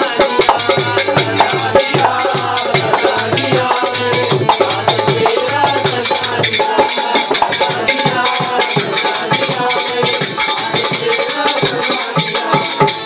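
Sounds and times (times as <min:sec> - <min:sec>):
harmonium chords: 0:00.0 - 0:05.8
hand drum beat: 0:00.0 - 0:13.0
man singing: 0:00.0 - 0:13.0.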